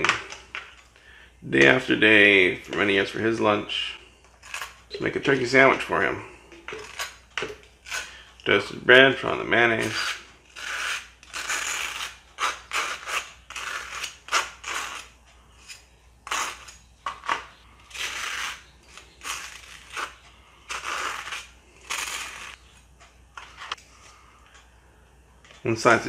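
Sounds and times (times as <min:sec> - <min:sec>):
knife scraping toast: 0:09.8 - 0:16.9, 0:17.9 - 0:22.6.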